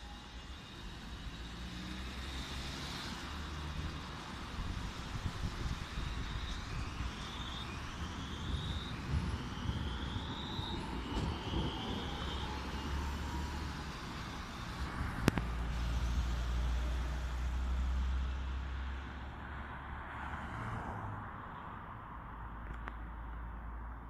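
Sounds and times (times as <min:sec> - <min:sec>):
tram motors whining: 0:00.0 - 0:18.5
low traffic rumble: 0:00.0 - 0:24.0.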